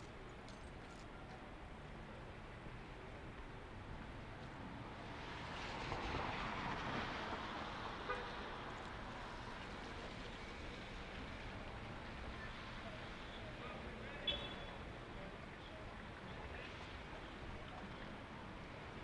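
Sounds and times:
road noise: 0.0s - 19.0s
tyres hissing on wet road: 4.9s - 13.9s.

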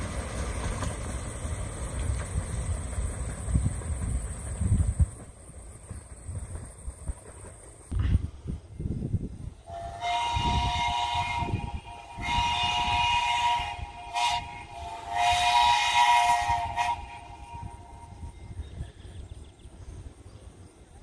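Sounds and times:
locomotive rumble and chuffs: 0.0s - 21.0s
steam locomotive whistle: 9.6s - 18.6s.

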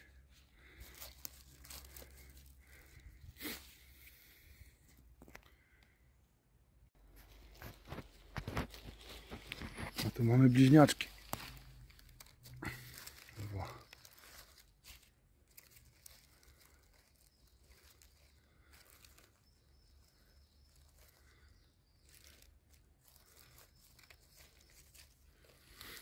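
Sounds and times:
dry leaves rustling and crackling: 0.0s - 3.8s, 7.1s - 26.0s.

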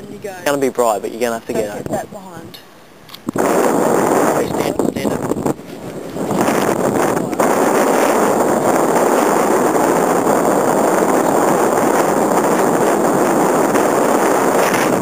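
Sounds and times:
loud rushing noise: 3.3s - 15.0s.

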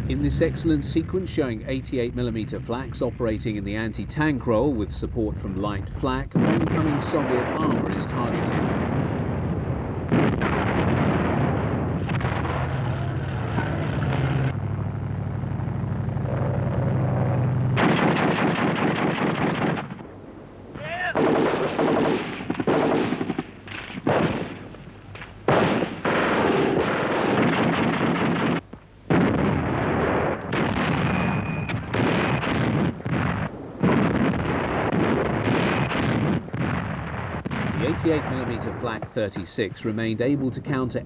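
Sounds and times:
low steady hum: 0.0s - 41.0s
automatic gunfire: 17.8s - 20.0s, 21.2s - 24.7s, 25.5s - 39.0s.

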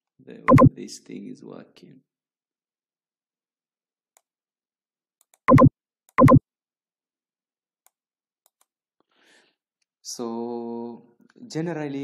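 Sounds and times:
electronic beeps: 0.5s - 0.7s, 5.5s - 6.4s.

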